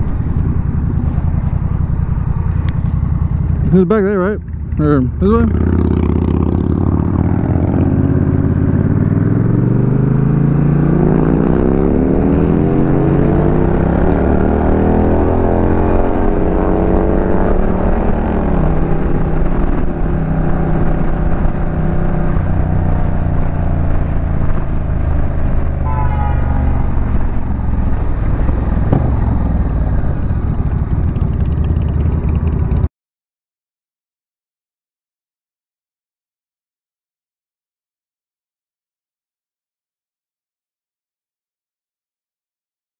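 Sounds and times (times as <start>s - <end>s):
motorcycle engine accelerating: 0.0s - 32.9s.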